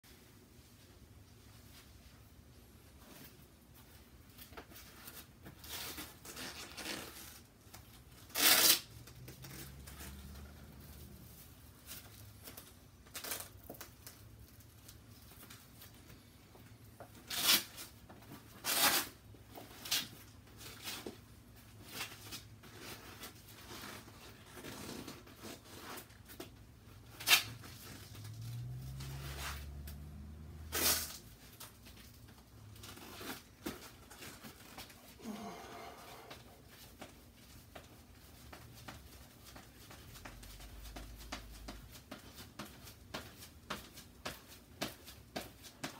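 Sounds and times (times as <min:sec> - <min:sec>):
rustling and scraping: 0:00.1 - 0:45.9
sharp rips and knocks: 0:08.2 - 0:10.2, 0:30.6 - 0:31.8.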